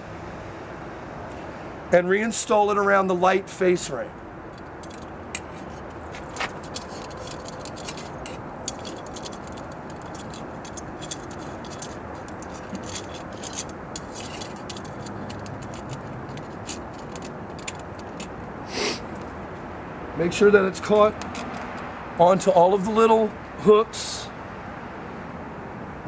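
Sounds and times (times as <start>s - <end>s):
metal clamp clicking and rattling: 4.5s - 18.5s, 21.2s - 21.9s.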